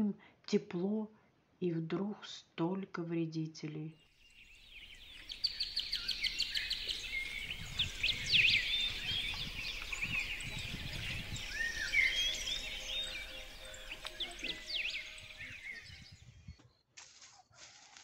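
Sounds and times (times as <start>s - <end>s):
songbirds singing and chirping: 3.9s - 16.8s
fast bird trill: 4.5s - 16.3s.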